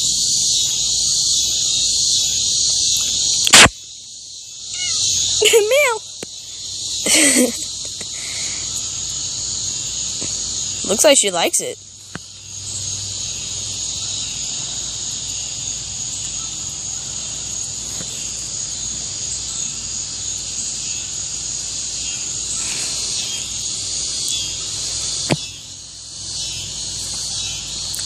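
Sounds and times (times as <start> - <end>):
insect chorus trilling: 0.0 - 28.0
sharp click: 3.4 - 3.8.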